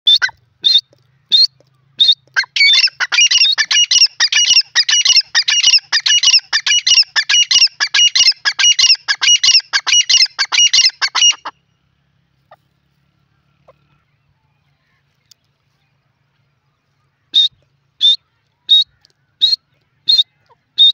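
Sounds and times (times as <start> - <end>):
francolin calling: 0.1 - 11.5.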